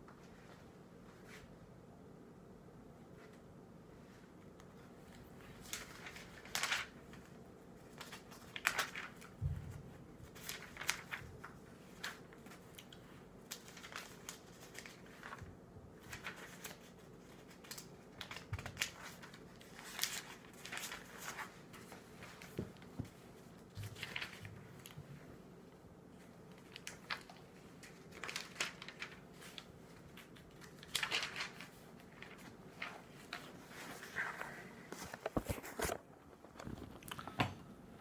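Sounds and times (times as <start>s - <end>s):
pages being turned: 5.0s - 9.4s, 10.2s - 15.4s, 16.0s - 25.0s, 26.2s - 37.2s
fabric rustling: 30.7s - 36.9s.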